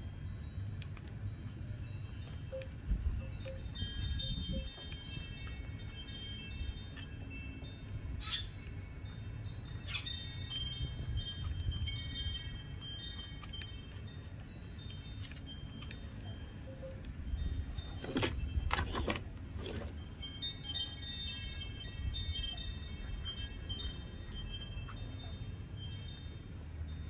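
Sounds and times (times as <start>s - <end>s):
high chimes ringing: 0.0s - 27.0s.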